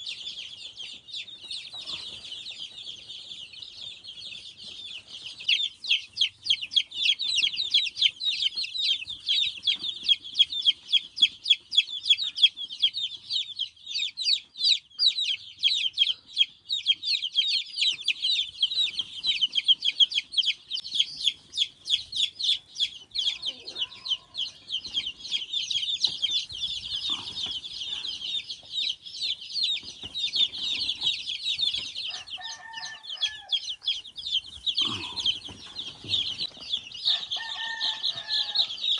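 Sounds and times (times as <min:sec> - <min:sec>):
chicks peeping: 0:00.0 - 0:38.9.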